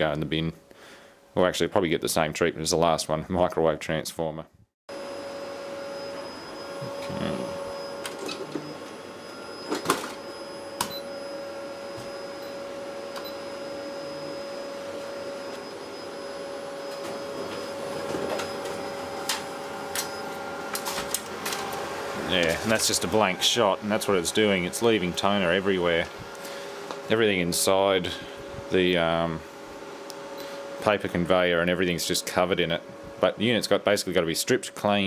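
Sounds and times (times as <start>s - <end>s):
photocopier humming: 4.9s - 31.4s.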